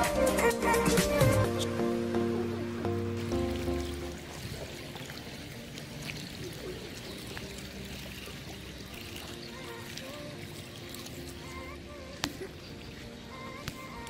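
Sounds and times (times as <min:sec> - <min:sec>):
music track: 0:00.0 - 0:14.0
running water trickling: 0:00.0 - 0:14.0.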